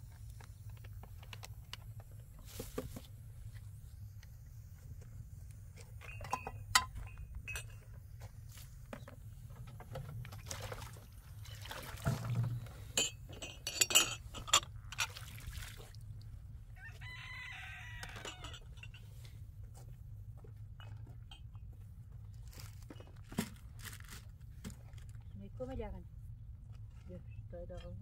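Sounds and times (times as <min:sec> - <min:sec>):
sharp clinks and knocks: 0:06.0 - 0:08.0, 0:13.0 - 0:15.1, 0:18.0 - 0:19.2
rooster crowing: 0:16.8 - 0:18.7.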